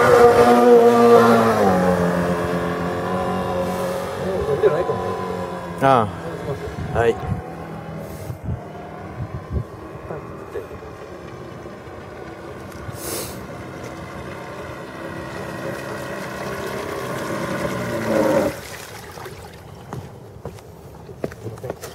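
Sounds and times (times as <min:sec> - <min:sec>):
model boat engine running: 0:00.0 - 0:18.7
short hiss: 0:13.0 - 0:13.4.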